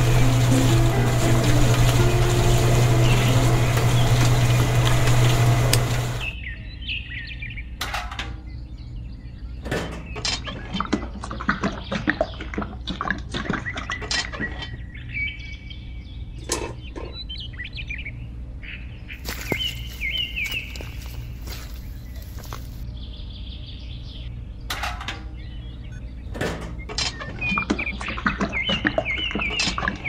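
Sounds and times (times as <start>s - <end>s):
loud steady hum: 0.0s - 6.4s
birds chirping: 0.0s - 30.0s.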